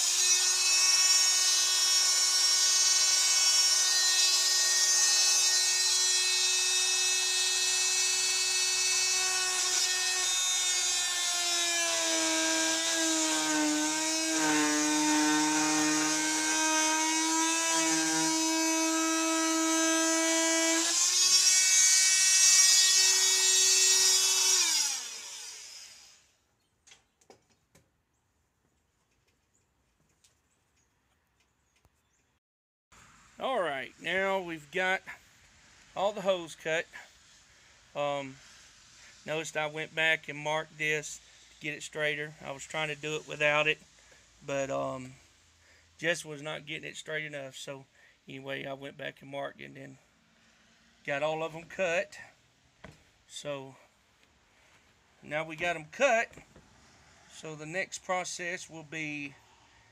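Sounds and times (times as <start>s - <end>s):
power tool motor whine: 0.0s - 26.3s.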